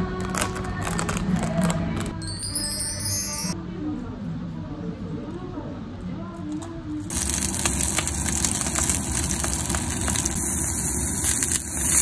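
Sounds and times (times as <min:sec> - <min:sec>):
fish sizzling in hot oil: 0:07.1 - 0:12.0.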